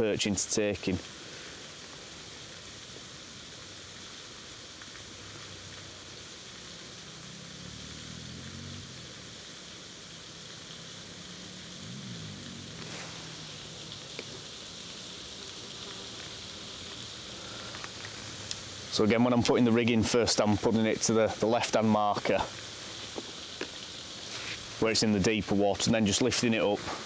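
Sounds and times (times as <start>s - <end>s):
soft outdoor hiss: 0.0s - 27.0s
distant engine hum: 5.0s - 19.9s.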